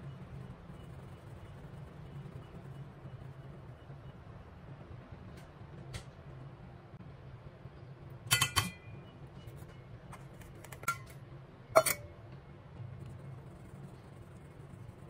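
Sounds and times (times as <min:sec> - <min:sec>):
metal sieve clinking on bowl: 0:08.3 - 0:08.8, 0:11.8 - 0:12.1.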